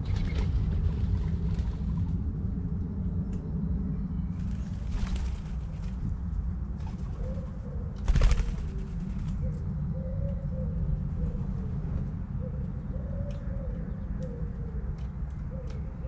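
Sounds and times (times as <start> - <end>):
wings fluttering: 0.0 - 2.2, 4.3 - 6.2, 6.8 - 9.5
doves cooing: 6.7 - 16.0.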